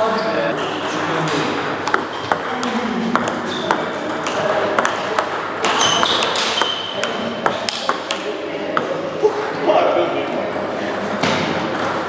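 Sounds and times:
murmur of voices: 0.0 - 12.0
table tennis balls clicking: 0.5 - 9.0.

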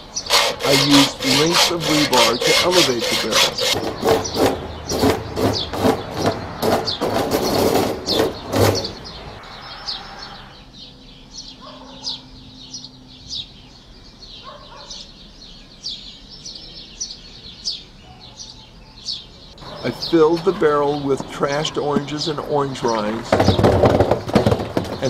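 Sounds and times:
small birds chirping: 0.0 - 25.0
hacksaw cutting steel: 0.3 - 8.9.

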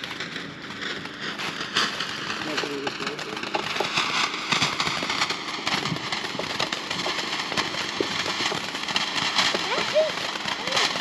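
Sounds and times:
firework fountain hissing: 0.0 - 11.0
rapid crackling pops: 0.0 - 11.0.

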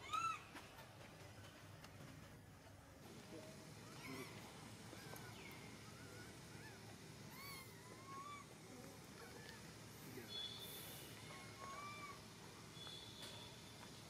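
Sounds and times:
infant monkey whimpering coos: 3.8 - 4.4, 5.0 - 8.6, 11.2 - 12.2.

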